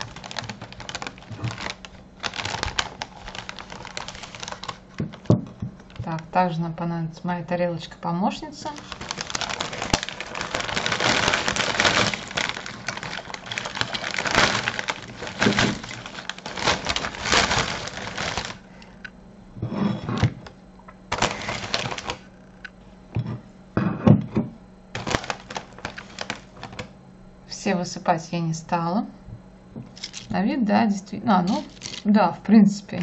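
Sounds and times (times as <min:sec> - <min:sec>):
chips poured from crinkly bag: 0:00.0 - 0:05.3, 0:08.7 - 0:18.6, 0:21.1 - 0:22.2, 0:25.0 - 0:26.5, 0:30.0 - 0:30.3, 0:31.5 - 0:32.1.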